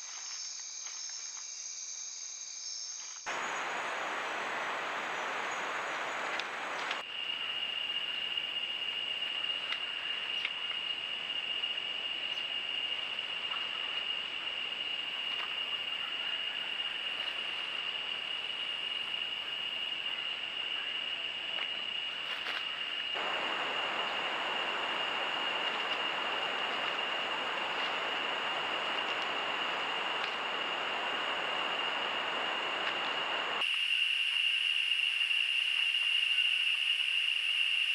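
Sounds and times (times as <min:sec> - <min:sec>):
constant hiss: 0:00.0 - 0:37.9
high-pitched whine: 0:23.1 - 0:35.7.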